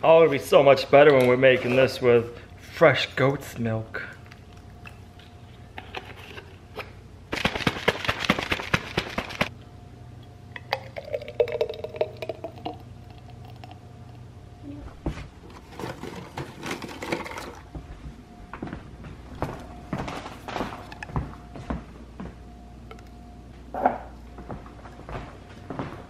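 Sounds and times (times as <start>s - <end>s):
shaker cup rattling: 7.3s - 9.5s
pouring into glass jar: 10.6s - 13.7s
rummaging clatter on shelf: 15.2s - 17.6s.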